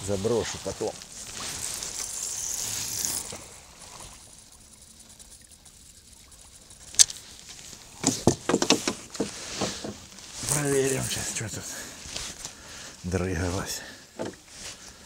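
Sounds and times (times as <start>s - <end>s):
soft hiss: 0.0s - 15.0s
fishing reel clicks and taps: 6.8s - 7.2s.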